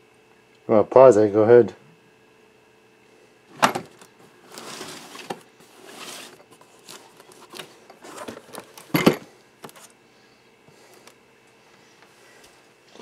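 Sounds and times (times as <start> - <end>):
cardboard box sliding on table: 4.5 - 7.0.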